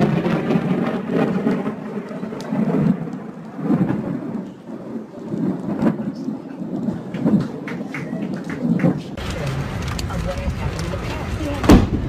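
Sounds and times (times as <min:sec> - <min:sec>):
steady rain: 0:00.0 - 0:12.0
thunder rumbling: 0:00.0 - 0:12.0
raindrop clicks: 0:01.4 - 0:04.6, 0:05.3 - 0:11.2.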